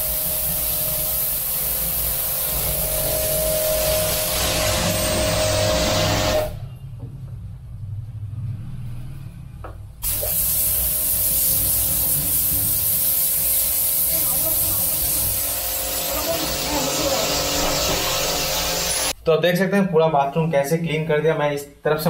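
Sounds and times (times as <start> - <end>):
pressure washer spraying tiles: 0.0 - 6.5, 10.0 - 19.2.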